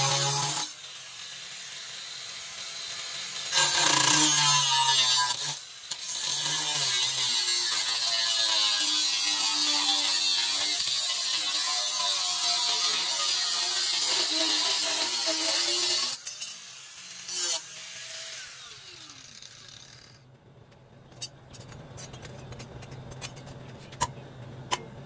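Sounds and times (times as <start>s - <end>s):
angle grinder cutting steel: 0.0s - 20.2s
grinder winding down whine: 18.3s - 20.2s.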